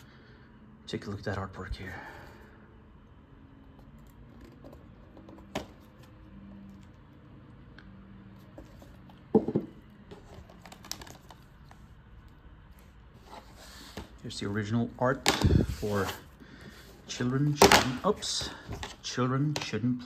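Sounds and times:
plastic cases scraping and tapping: 8.6 - 11.4
clatter of plastic cases: 9.3 - 11.4.

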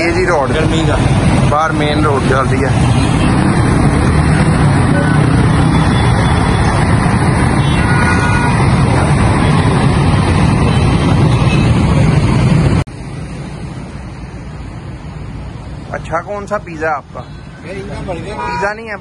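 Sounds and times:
car and motorbike engines: 0.0 - 19.0.

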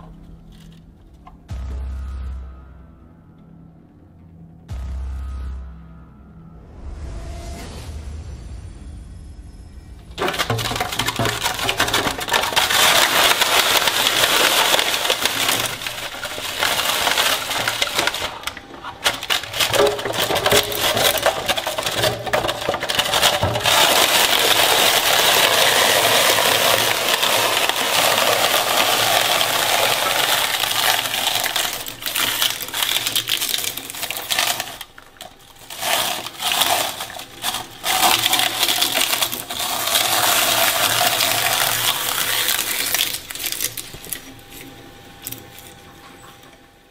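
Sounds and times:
shredder blades grinding rubber: 10.2 - 45.8.

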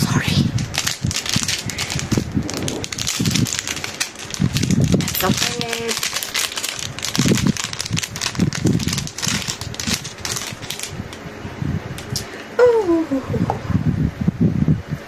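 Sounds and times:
plastic packet crinkling: 0.4 - 11.2.

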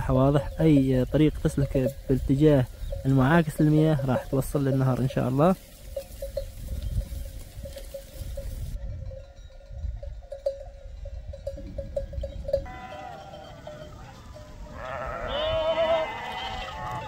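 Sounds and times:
sheep bells clinking: 0.0 - 17.0
sheep bleating: 12.7 - 17.0.

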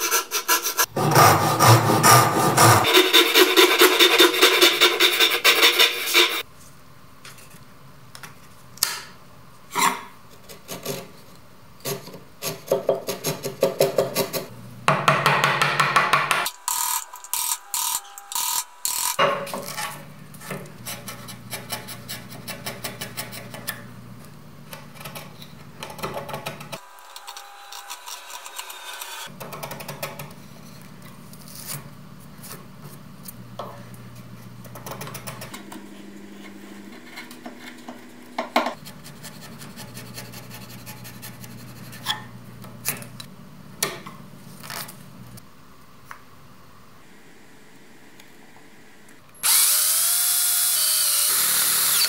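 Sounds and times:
chisel scraping wood: 0.0 - 6.4.

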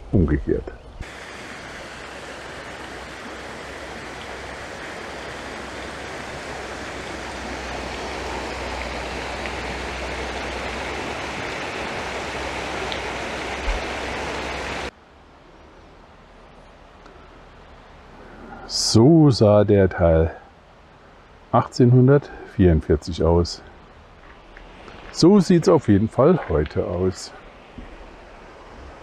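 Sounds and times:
quiet hiss: 0.0 - 29.0
flowing water rushing: 1.0 - 15.3, 22.6 - 29.0.

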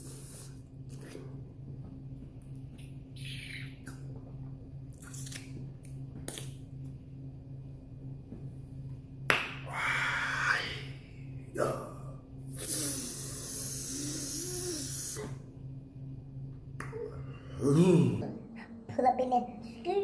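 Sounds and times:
man breathing out sharply hissing: 0.0 - 0.6, 12.5 - 15.4.

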